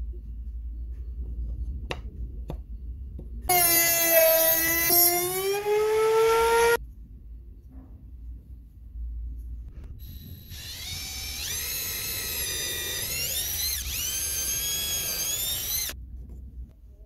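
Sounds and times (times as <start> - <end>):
cordless drill boring into wood: 3.5 - 6.8, 10.1 - 16.0.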